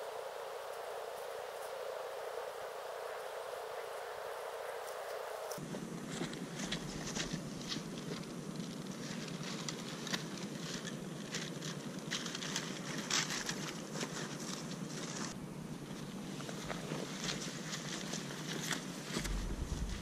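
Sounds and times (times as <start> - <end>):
crackling and rustling clicks: 4.8 - 15.4
wind rushing on microphone: 19.2 - 20.0.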